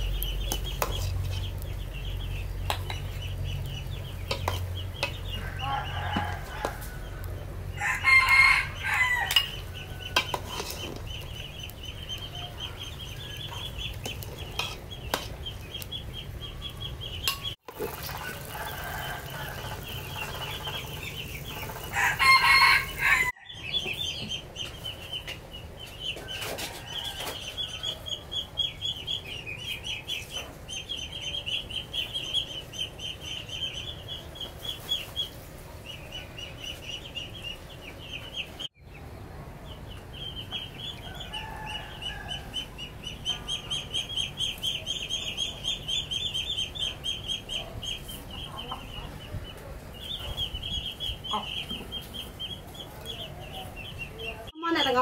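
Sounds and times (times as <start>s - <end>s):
chickens clucking: 0.0s - 54.6s
rooster crowing: 5.4s - 10.3s, 18.2s - 20.2s, 21.6s - 23.6s, 41.0s - 42.6s.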